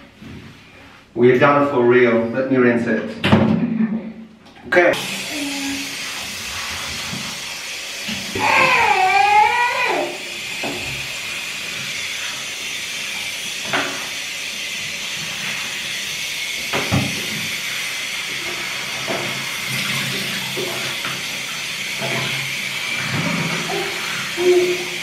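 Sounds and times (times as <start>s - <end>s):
shower spray hissing: 4.9s - 25.0s.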